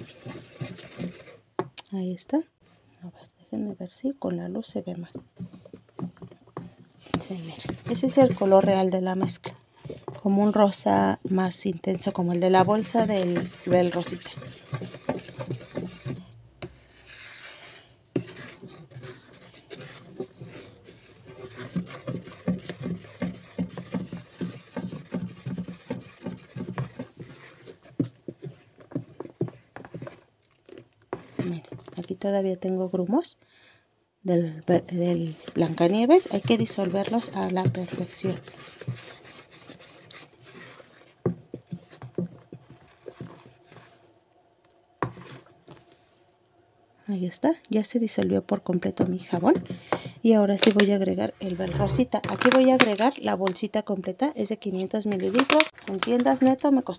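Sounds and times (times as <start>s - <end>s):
spoon scraping plastic bowl: 0.0s - 1.7s, 5.1s - 32.2s, 34.6s - 44.1s, 45.0s - 45.9s, 48.8s - 53.6s, 54.6s - 56.9s
paddle stirring soapy liquid: 0.0s - 1.8s, 5.1s - 32.2s, 34.6s - 44.2s, 45.0s - 46.0s, 48.8s - 53.2s.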